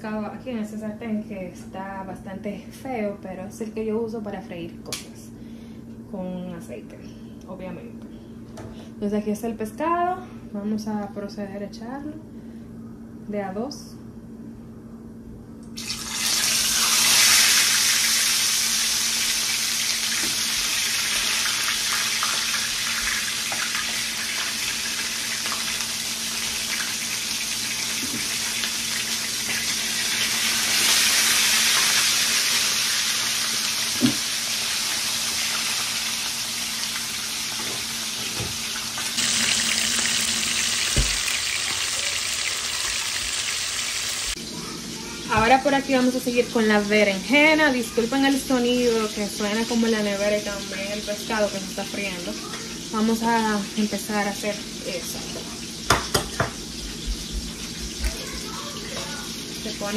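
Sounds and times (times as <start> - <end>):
fish sizzling in hot oil: 15.8 - 44.4, 48.1 - 59.9.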